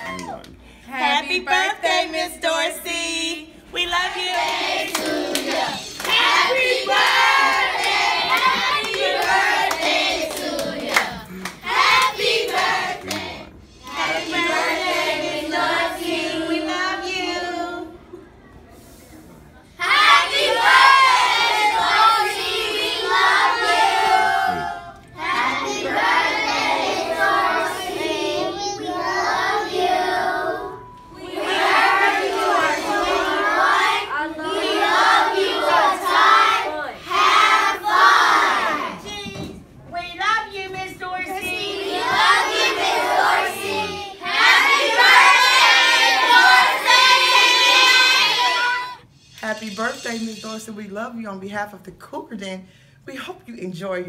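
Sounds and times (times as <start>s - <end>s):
children shouting and cheering: 0.0s - 0.5s, 41.6s - 49.0s
children singing together: 4.1s - 18.0s, 19.8s - 39.1s, 41.3s - 49.0s.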